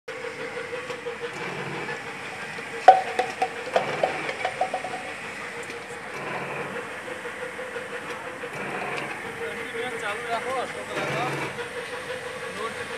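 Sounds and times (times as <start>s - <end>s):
machine motor hum: 1.0s - 6.4s
sharp clack: 2.8s - 5.8s.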